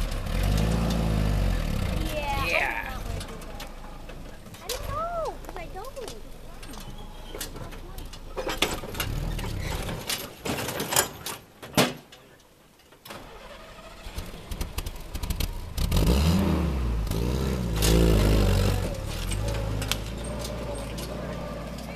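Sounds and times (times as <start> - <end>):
jeep engine revving: 0.0 - 4.4, 8.8 - 10.1, 13.3 - 21.9.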